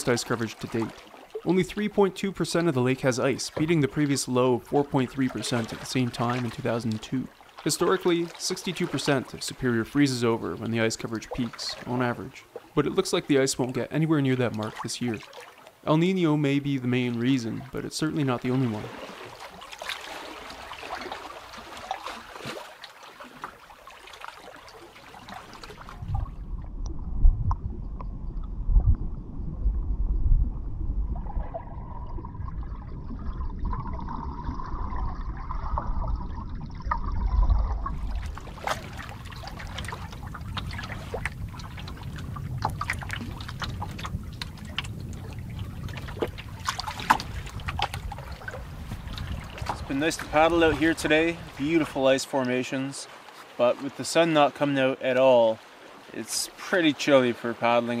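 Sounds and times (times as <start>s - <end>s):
lake water lapping: 0.0s - 26.7s, 31.1s - 58.0s
strong low rumble: 25.9s - 49.9s.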